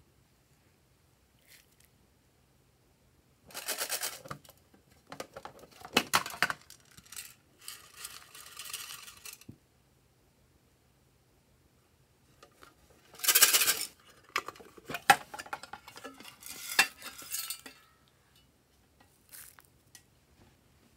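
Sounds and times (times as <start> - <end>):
plastic sprinkles rattling: 5.8 - 9.5, 19.1 - 19.7.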